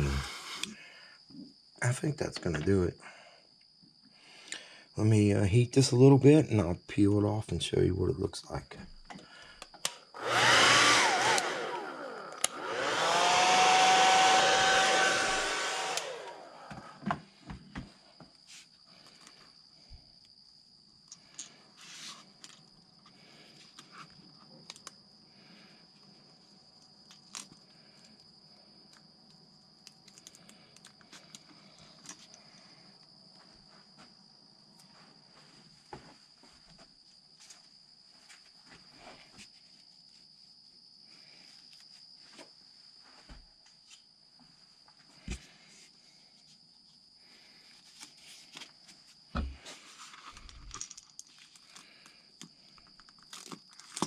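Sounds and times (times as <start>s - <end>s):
steady high-pitched whine: 0.0s - 0.8s.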